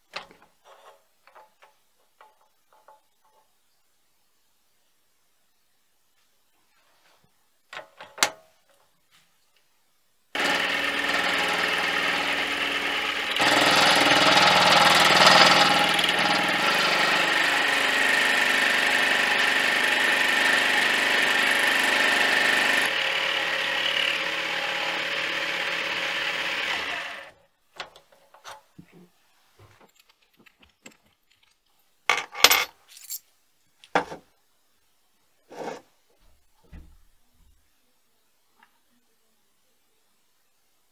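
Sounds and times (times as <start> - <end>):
lathe motor whine: 10.4 - 27.3
metal parts clicking and knocking: 29.8 - 33.3.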